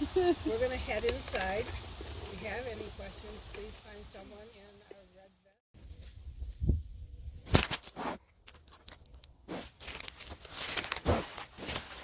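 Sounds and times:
grass rustling and tearing: 9.5 - 12.0.

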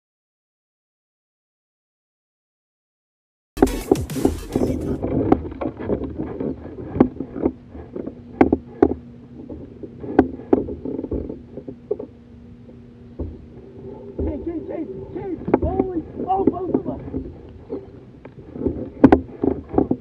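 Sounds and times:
water splashing: 3.6 - 20.0
knocks on kayak: 13.2 - 13.4, 15.4 - 17.3.

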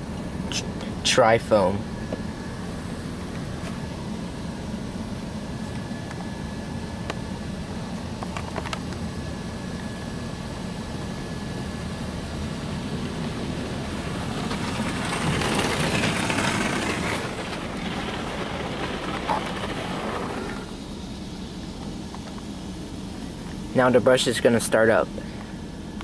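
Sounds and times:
car wash machine running: 9.1 - 26.0.

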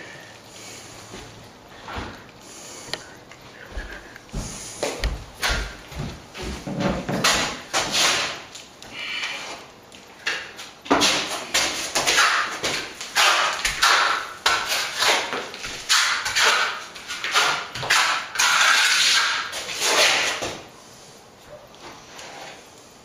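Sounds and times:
trowel scraping plaster on wall: 6.7 - 8.5, 10.3 - 20.6.

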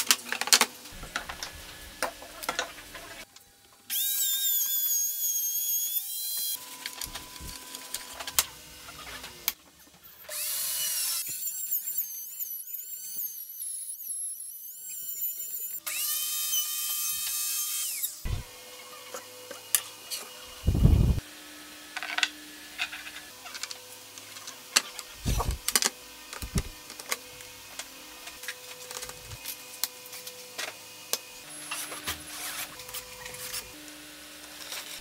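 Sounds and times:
router whining cutting wood: 10.3 - 35.0.

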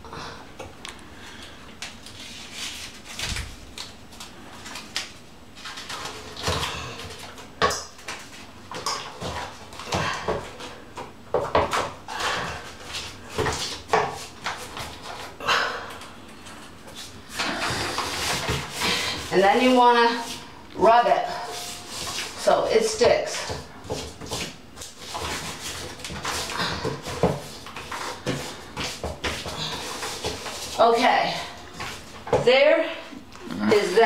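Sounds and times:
tape peeling and crinkling: 1.8 - 9.9.

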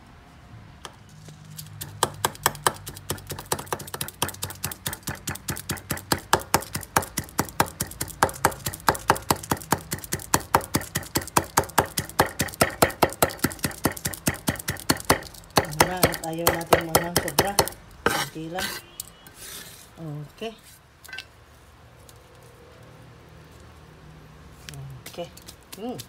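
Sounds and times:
cleaver chopping on wooden block: 1.8 - 18.3.

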